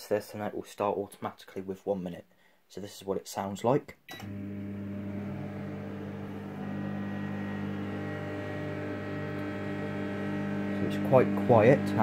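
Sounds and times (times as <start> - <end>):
microwave oven humming: 4.1 - 12.0.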